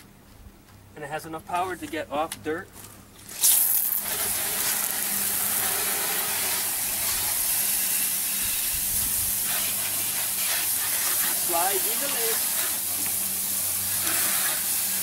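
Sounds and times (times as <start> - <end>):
water jets hissing: 3.3 - 15.0.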